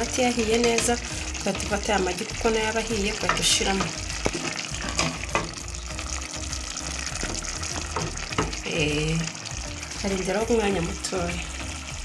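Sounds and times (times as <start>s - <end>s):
sauce bubbling and sizzling: 0.0s - 12.0s
spoon knocking against pot: 3.2s - 5.6s, 7.2s - 8.6s.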